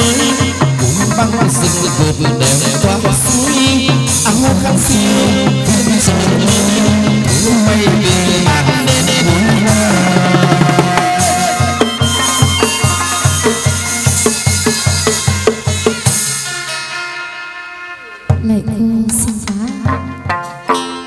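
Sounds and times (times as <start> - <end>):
steady drum beat: 0.0 - 16.8
ritual ensemble music: 0.0 - 21.0.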